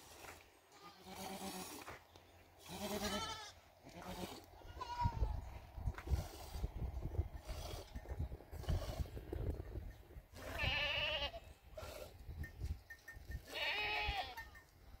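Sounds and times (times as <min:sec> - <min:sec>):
goats bleating: 0:00.7 - 0:01.9, 0:02.6 - 0:05.6, 0:10.4 - 0:11.5, 0:13.4 - 0:14.5.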